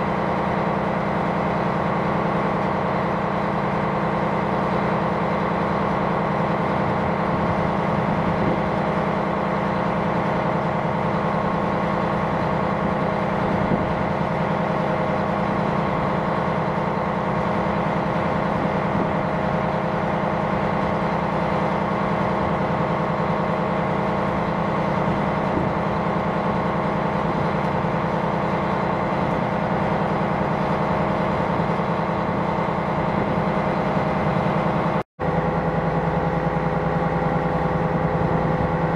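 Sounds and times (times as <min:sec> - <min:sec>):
ship diesel engine drone: 0:00.0 - 0:38.9.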